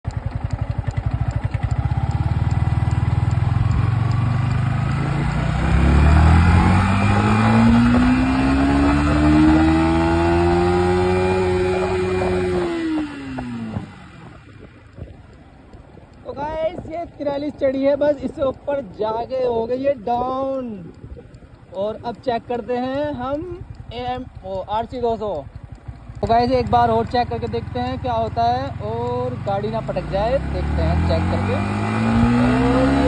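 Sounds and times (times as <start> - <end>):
motorcycle engine revving: 0.0 - 16.2, 20.9 - 33.0.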